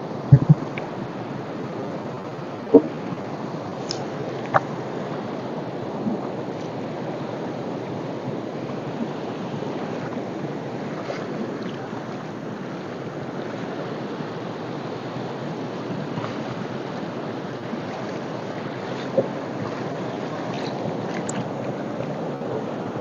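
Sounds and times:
river rushing over rocks: 0:00.0 - 0:23.0.

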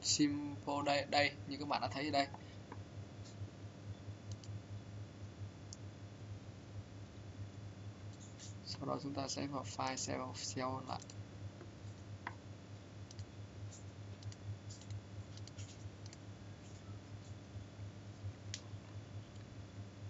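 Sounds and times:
steady low hum: 0:00.0 - 0:20.0
computer mouse clicks: 0:04.3 - 0:04.6, 0:11.0 - 0:11.2, 0:13.1 - 0:16.9.

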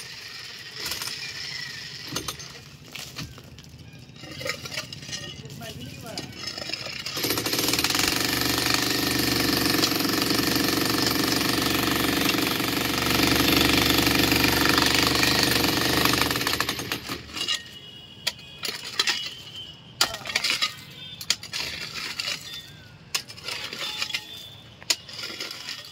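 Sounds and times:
concrete rubble knocking and clinking: 0:00.5 - 0:08.1, 0:16.0 - 0:25.9
demolition hammer chiselling concrete: 0:06.3 - 0:17.4.

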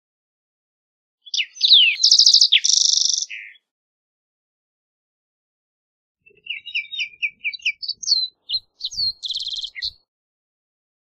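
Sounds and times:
bird singing ending in trill: 0:06.3 - 0:10.0.

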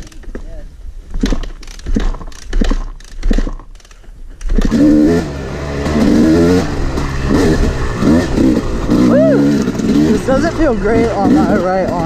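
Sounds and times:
dirt bike engine revving: 0:04.4 - 0:12.0.

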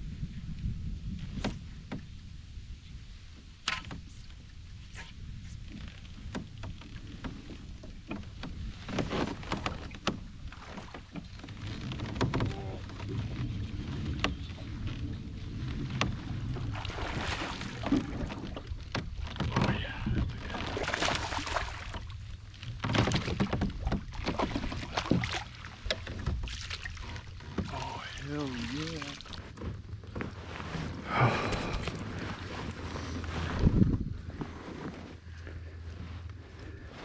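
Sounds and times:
wind rumble on microphone: 0:00.0 - 0:37.0
clicks and knocks of kayak gear: 0:01.2 - 0:02.1, 0:03.6 - 0:16.8, 0:17.7 - 0:27.9
fish splashing in water: 0:16.6 - 0:18.5, 0:20.5 - 0:22.1.

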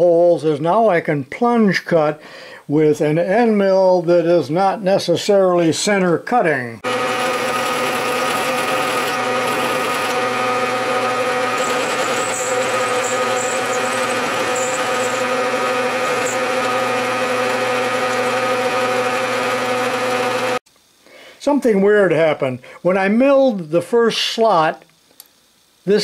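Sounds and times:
high chirps of metal cutting: 0:06.8 - 0:20.1
milling machine humming and whining: 0:06.8 - 0:20.6.

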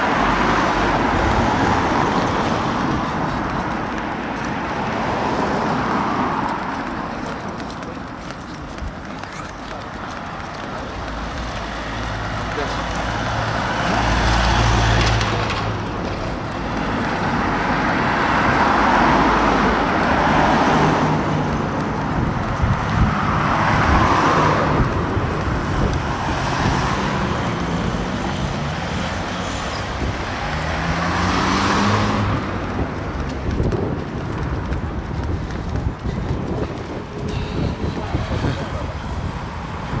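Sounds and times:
cars passing by: 0:00.0 - 0:40.0.

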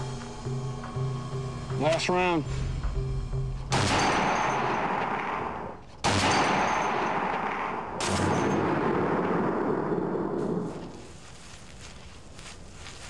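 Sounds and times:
rifle shots echoing: 0:03.7 - 0:10.8.

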